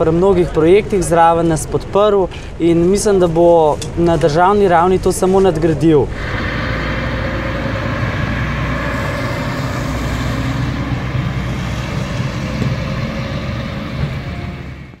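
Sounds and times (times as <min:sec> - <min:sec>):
vehicles driving by on wet road: 0:06.1 - 0:15.0.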